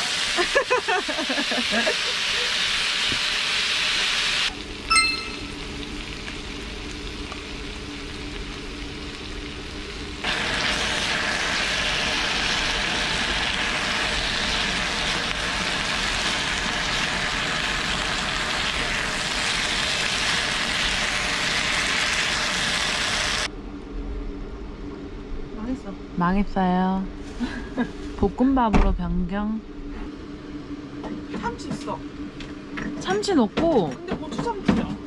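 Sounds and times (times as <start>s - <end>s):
meat and vegetables sizzling: 0.0s - 23.5s.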